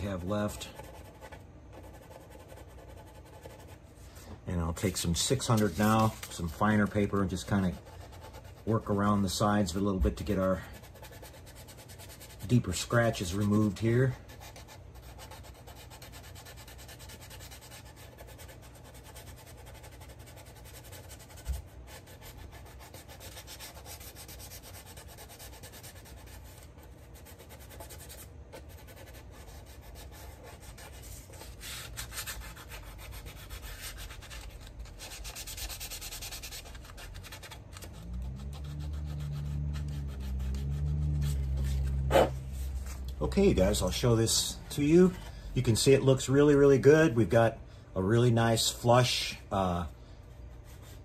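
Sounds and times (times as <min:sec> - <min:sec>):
sandpaper rubbing on plastic: 0:00.0 - 0:03.8, 0:04.9 - 0:45.2
low hum: 0:36.5 - 0:47.8.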